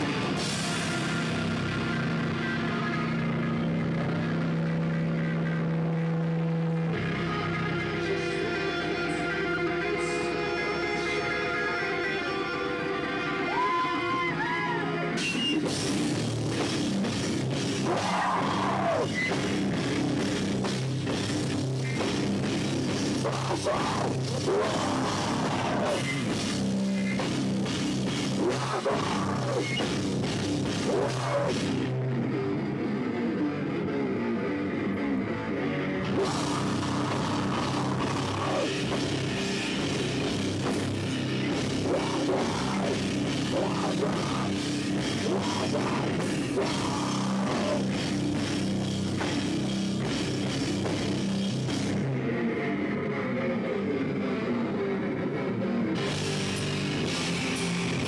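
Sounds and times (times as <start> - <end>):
drum kit: 0.0 - 6.0, 15.2 - 32.2, 36.0 - 52.1, 56.0 - 58.0
electric guitar: 0.0 - 58.0.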